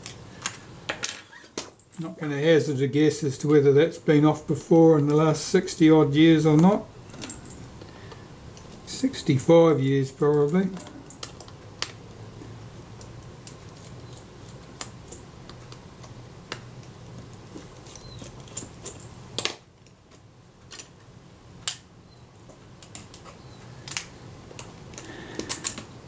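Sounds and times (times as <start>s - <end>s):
steady low hum: 0.0s - 26.0s
small metal tool clicking and scraping: 13.0s - 15.8s, 16.8s - 19.1s.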